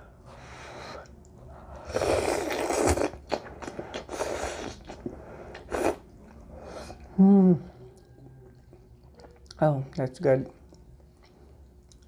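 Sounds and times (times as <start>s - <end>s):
person slurping noodles: 1.8s - 6.0s
wet chewing clicks: 10.6s - 12.0s.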